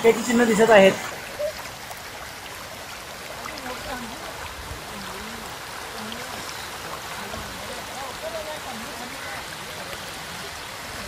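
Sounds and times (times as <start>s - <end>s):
floodwater rushing: 0.0s - 11.0s
faint voices talking: 3.3s - 11.0s.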